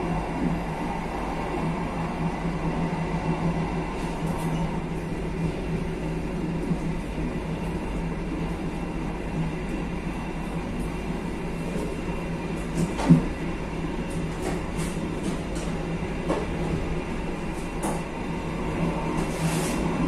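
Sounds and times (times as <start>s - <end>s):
train wheels rumbling on rail: 0.0s - 20.0s.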